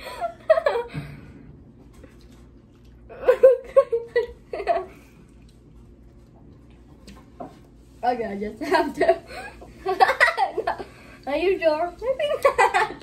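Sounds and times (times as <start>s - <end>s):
person giggling: 3.1s - 5.0s.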